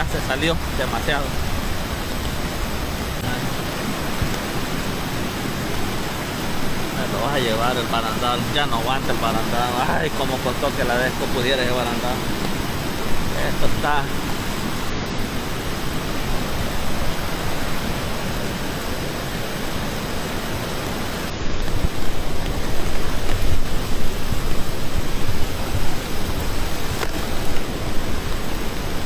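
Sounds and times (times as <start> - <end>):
floodwater rushing: 0.0 - 29.0.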